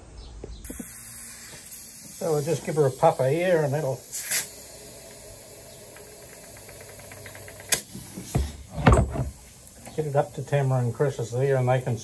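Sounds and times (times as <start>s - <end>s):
air blow gun blast: 0.6s - 6.8s, 7.6s - 9.8s.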